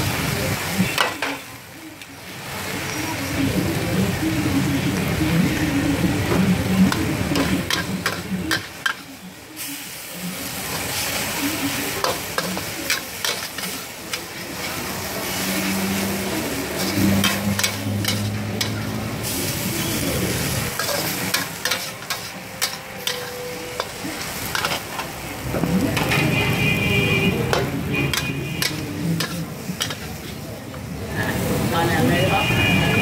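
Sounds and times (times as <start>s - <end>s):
noodles sizzling in a wok: 0.0s - 33.0s
metal spatula scraping a wok: 11.8s - 25.2s, 27.5s - 30.4s.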